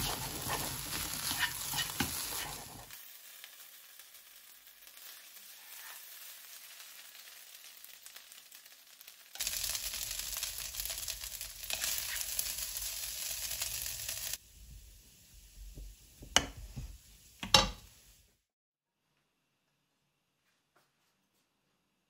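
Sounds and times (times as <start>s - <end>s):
spatula scraping: 0.0s - 3.0s, 5.5s - 6.2s, 11.7s - 12.4s
fried rice sizzling: 0.0s - 18.4s.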